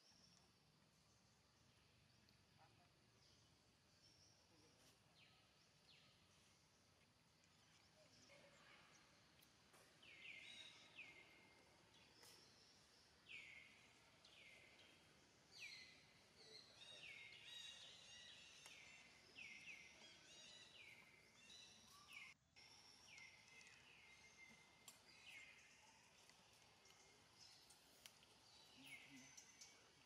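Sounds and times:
birds chirping: 7.5s - 30.0s.

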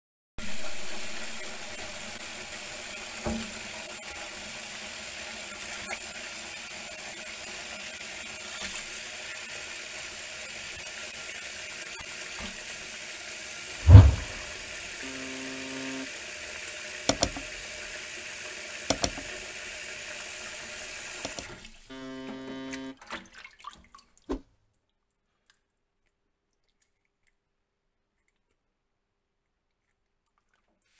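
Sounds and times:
tap water running into sink: 0.6s - 4.5s, 14.5s - 23.8s
loud thump: 13.8s - 14.6s.

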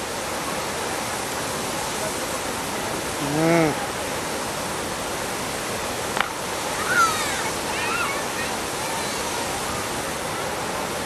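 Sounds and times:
river rushing over weir: 0.0s - 11.0s
person calling out: 3.2s - 3.8s.

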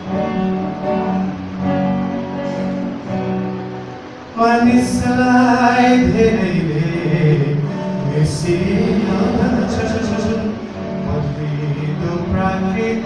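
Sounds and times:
acoustic guitar strumming: 0.0s - 13.0s
man singing: 4.4s - 13.0s.

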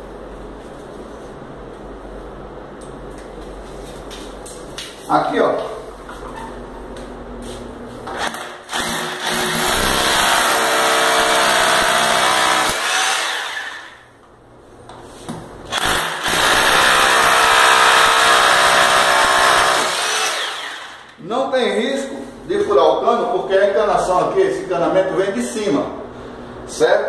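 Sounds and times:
hammer drill boring into tile: 8.2s - 14.0s, 15.7s - 21.1s.

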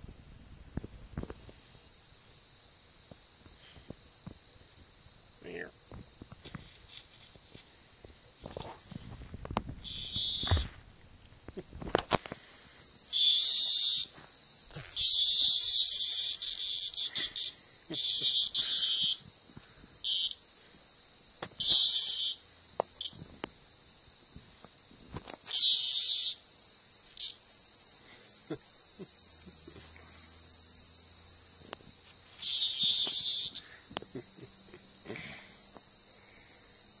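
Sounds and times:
night insects chirring: 0.0s - 37.0s
cicada buzzing distress squawks: 9.8s - 10.8s, 12.2s - 37.0s.

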